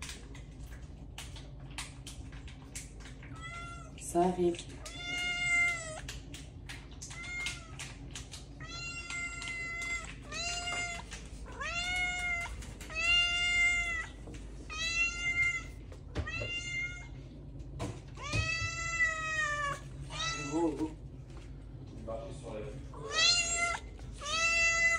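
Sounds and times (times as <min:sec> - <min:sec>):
cat meowing: 0:04.8 - 0:06.1, 0:07.1 - 0:07.9, 0:08.6 - 0:17.2, 0:18.2 - 0:20.9, 0:23.0 - 0:24.9.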